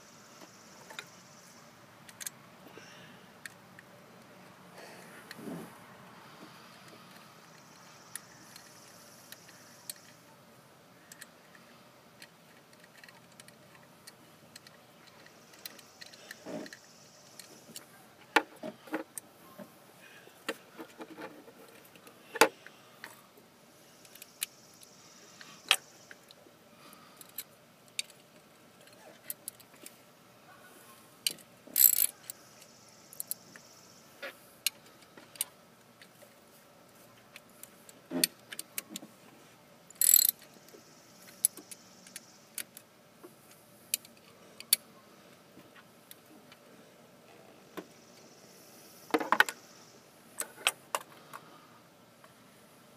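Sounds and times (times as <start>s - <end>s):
small metal parts clicking: 11.1s - 17.8s, 31.2s - 32.4s, 39.9s - 40.5s.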